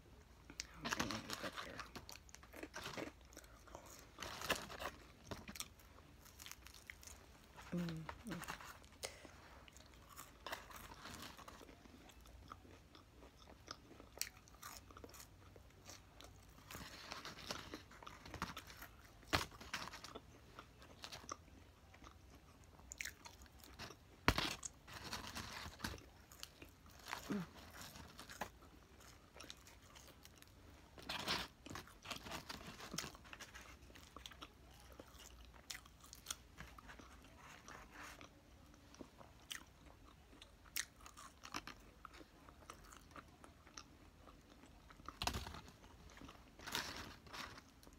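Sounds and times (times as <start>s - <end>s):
person chewing crunchy food: 0.5s - 47.9s.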